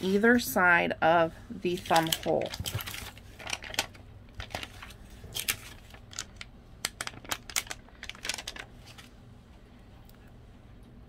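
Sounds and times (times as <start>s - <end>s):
plastic sheet crinkling and clicking: 1.7s - 9.2s.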